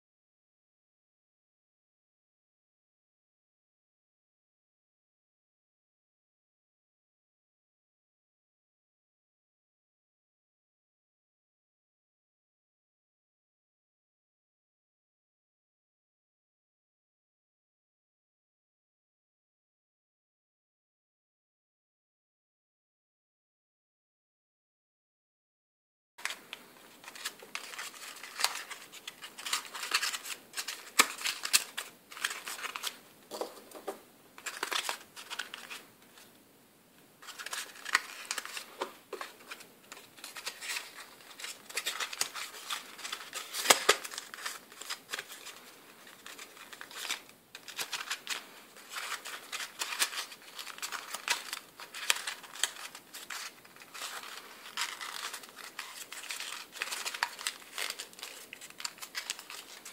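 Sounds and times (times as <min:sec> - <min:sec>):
paper crinkling and crackling: 0:26.2 - 0:36.3, 0:37.2 - 0:59.9.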